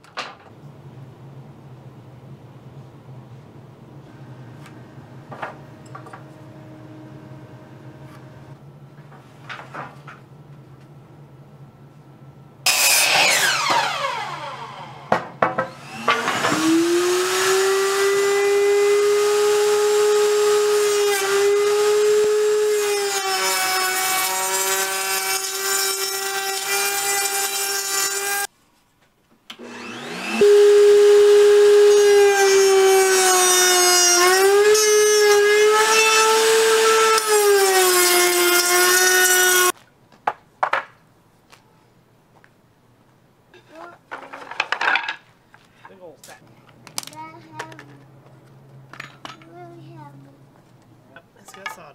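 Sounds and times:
miter saw blade winding down: 0:12.7 - 0:15.1
router whining: 0:12.7 - 0:28.5, 0:29.5 - 0:39.7.

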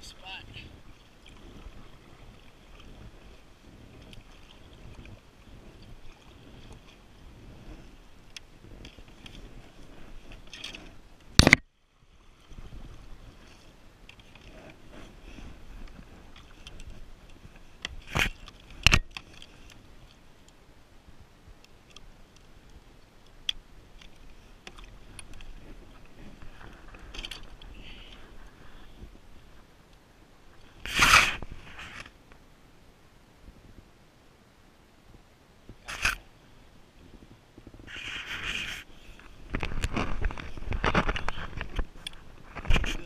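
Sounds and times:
low rumble of water: 0:00.0 - 0:43.0
paddle splashing through water: 0:00.4 - 0:20.2, 0:30.6 - 0:32.0.

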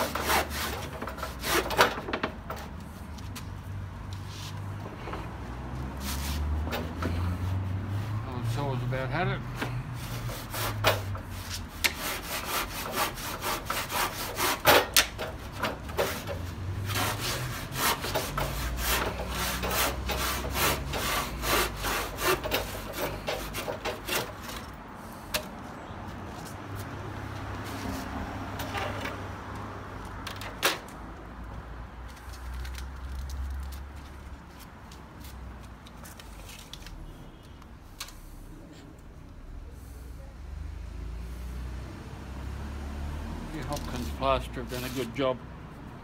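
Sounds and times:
handsaw cutting plaster: 0:00.0 - 0:02.0, 0:10.0 - 0:24.6.

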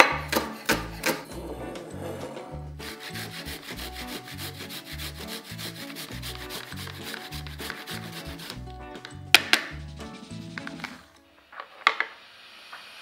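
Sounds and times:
food rasping on a grater: 0:02.8 - 0:08.6.

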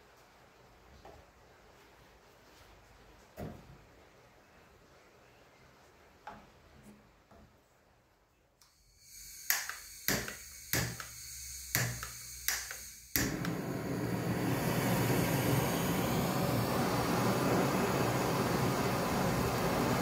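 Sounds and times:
gas hissing from torch nozzle: 0:08.8 - 0:20.0
igniter clicking: 0:09.4 - 0:13.7
torch flame rushing: 0:13.2 - 0:20.0.

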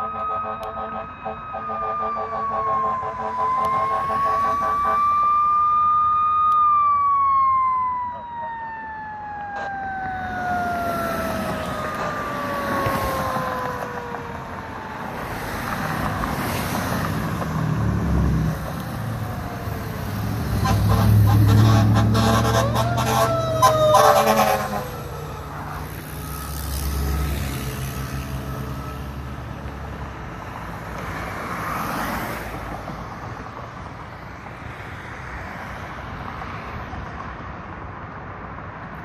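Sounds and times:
siren wailing: 0:00.0 - 0:17.4, 0:18.0 - 0:29.7.

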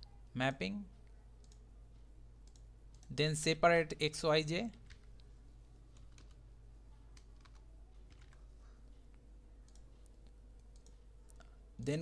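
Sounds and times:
low electrical hum: 0:00.0 - 0:12.0
keyboard and mouse clicks: 0:01.4 - 0:01.6, 0:02.4 - 0:03.2, 0:07.1 - 0:08.5, 0:09.1 - 0:11.6.

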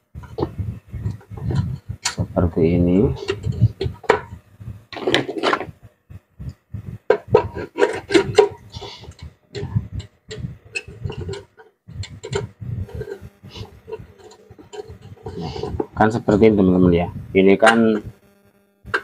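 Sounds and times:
metal scrape: 0:07.1 - 0:16.5.

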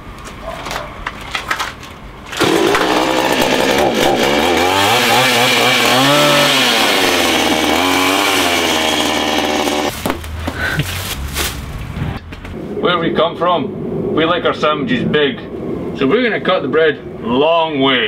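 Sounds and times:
chainsaw running at high throttle: 0:02.3 - 0:09.9.

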